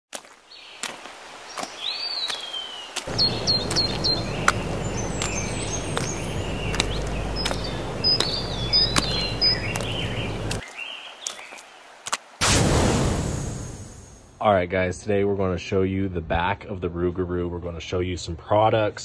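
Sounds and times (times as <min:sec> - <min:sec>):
birds chirping: 0:00.4 - 0:12.0
wind rumbling on microphone: 0:03.1 - 0:10.6.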